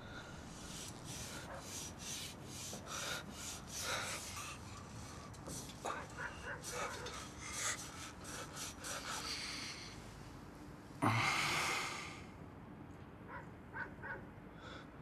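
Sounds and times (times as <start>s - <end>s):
heavy breathing: 0.0s - 10.2s, 11.0s - 12.3s.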